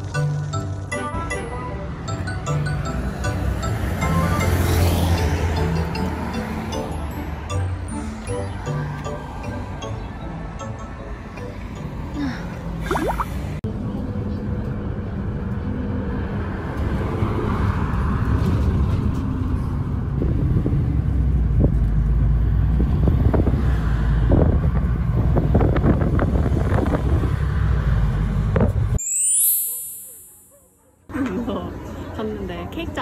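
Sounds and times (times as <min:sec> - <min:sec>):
bus engine rumble and road noise: 0:00.0 - 0:29.0, 0:31.1 - 0:33.0
high-pitched sound effect: 0:29.0 - 0:30.8.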